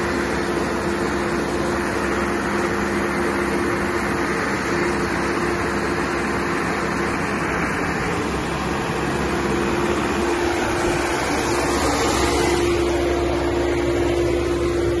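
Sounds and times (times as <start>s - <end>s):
steady held tone: 0.0s - 15.0s
tractor diesel engine running: 0.0s - 15.0s.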